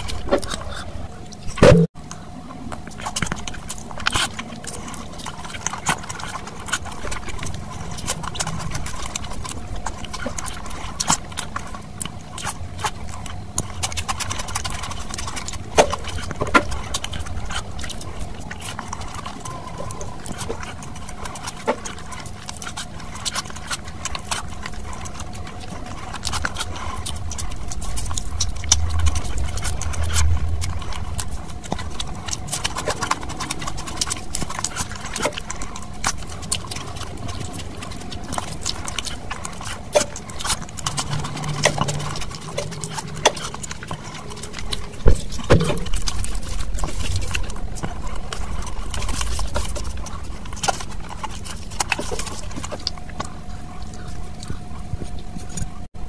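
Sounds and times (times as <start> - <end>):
wet chewing: 0.0 - 56.0.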